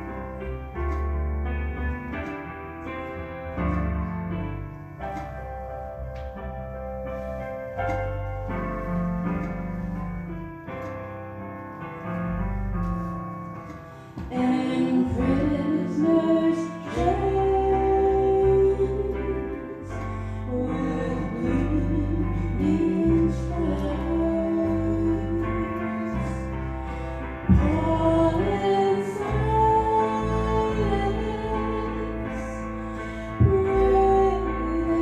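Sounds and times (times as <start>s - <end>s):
bass line: 14.4s - 35.0s.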